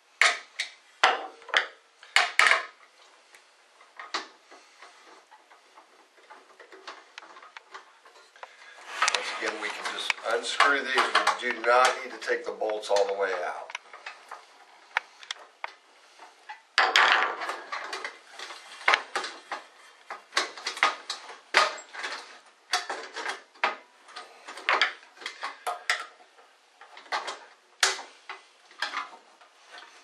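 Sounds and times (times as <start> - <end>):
rattling scrape: 4.4 - 15.3.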